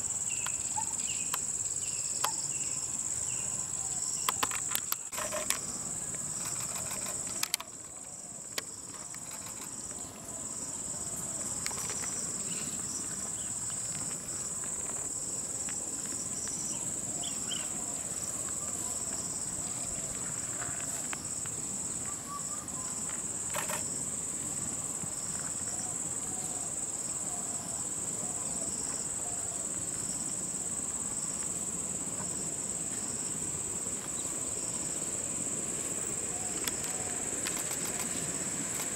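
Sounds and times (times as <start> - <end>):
insects droning: 0.0 - 38.9.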